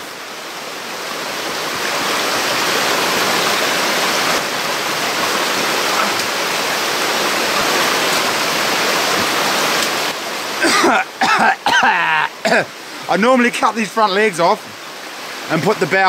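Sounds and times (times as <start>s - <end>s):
stream running over stones: 0.0s - 16.0s.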